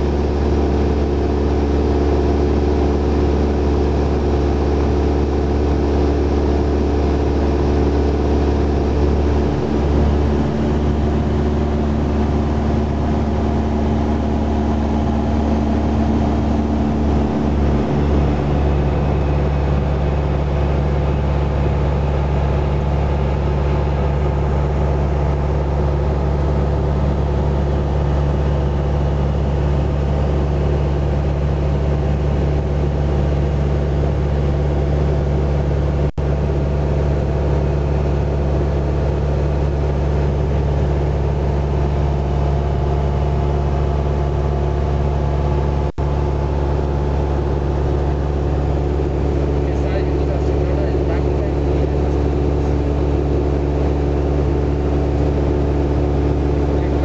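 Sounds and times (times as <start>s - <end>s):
propeller plane engine droning: 0.0s - 57.0s.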